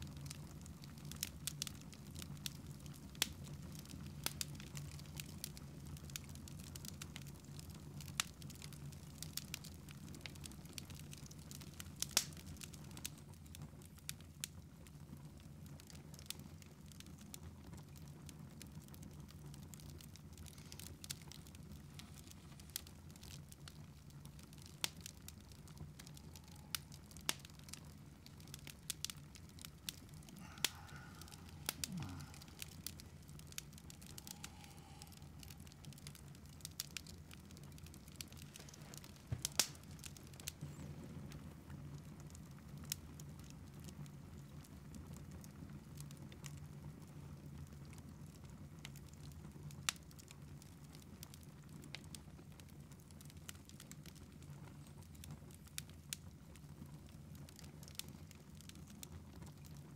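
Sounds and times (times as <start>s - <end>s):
wood fire crackling: 0.0s - 59.9s
low steady hum: 24.5s - 41.6s.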